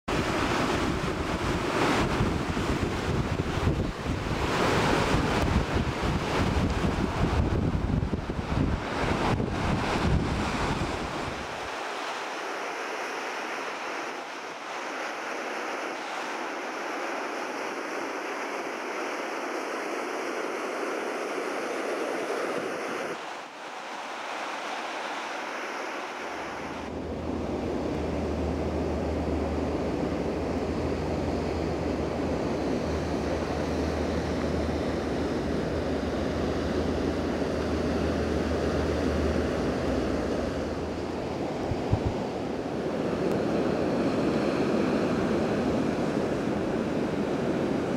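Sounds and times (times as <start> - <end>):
wind buffeting microphone: 0.1 - 11.8, 26.4 - 47.9
ocean surf breaking: 0.1 - 47.9.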